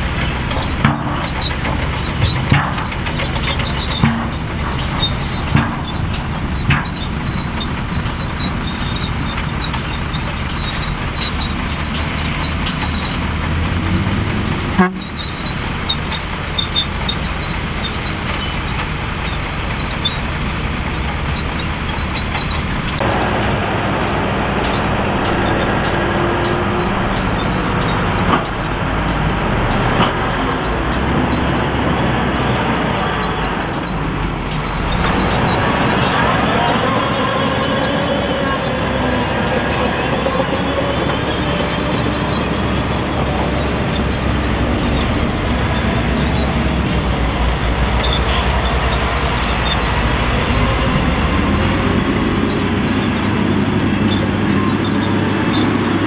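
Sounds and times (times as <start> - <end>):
heavy diesel engines running: 0.0 - 56.0.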